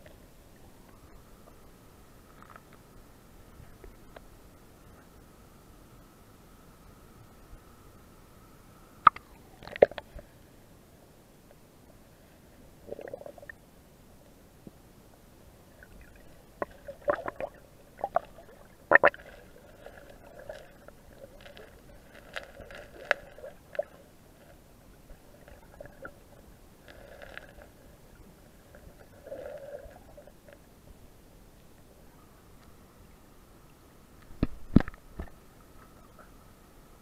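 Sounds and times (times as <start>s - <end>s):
sharp underwater clicks and knocks: 9.0s - 10.2s, 34.2s - 35.9s
underwater gurgles: 9.0s - 10.3s, 12.8s - 13.6s, 15.7s - 30.7s.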